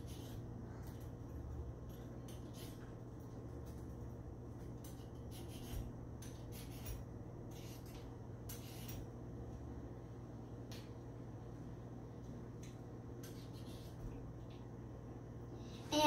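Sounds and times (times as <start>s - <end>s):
low steady hum: 0.0s - 16.0s
vegetable peeler scraping carrot: 4.9s - 9.0s.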